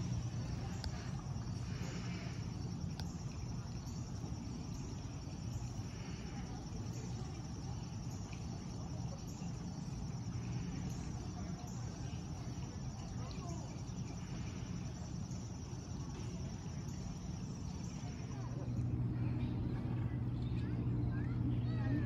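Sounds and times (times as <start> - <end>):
insects chirping: 0.0 - 22.0
low outdoor rumble: 0.0 - 22.0.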